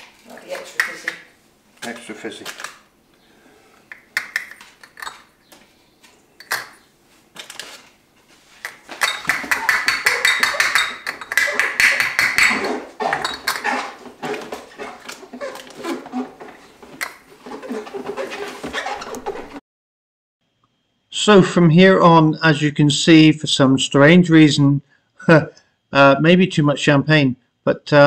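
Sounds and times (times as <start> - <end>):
glass bottles rattling: 4.4 - 5.3, 9.0 - 13.7.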